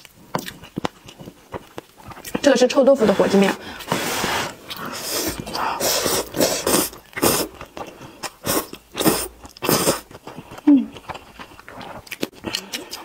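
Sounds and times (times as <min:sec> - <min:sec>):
chewing: 0:00.0 - 0:02.7, 0:04.6 - 0:13.0
noodle slurping: 0:02.4 - 0:10.4.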